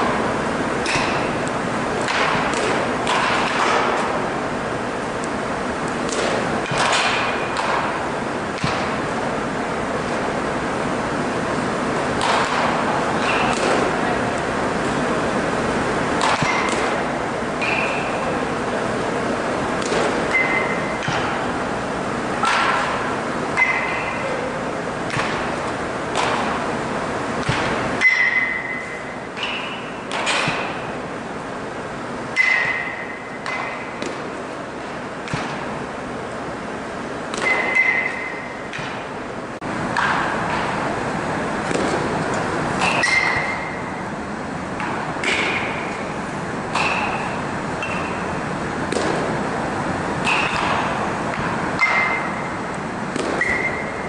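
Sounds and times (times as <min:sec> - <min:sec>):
bats striking balls with ping: 0:00.0 - 0:18.7, 0:19.3 - 0:31.0, 0:32.3 - 0:35.9, 0:37.2 - 0:39.2, 0:39.9 - 0:41.0, 0:41.6 - 0:49.5, 0:50.2 - 0:54.0
balls thudding into netting: 0:02.0 - 0:04.2, 0:06.0 - 0:09.2, 0:12.0 - 0:14.0, 0:16.1 - 0:18.2, 0:19.6 - 0:21.5, 0:25.0 - 0:30.9, 0:41.6 - 0:43.8, 0:46.7 - 0:49.4, 0:53.1 - 0:54.0.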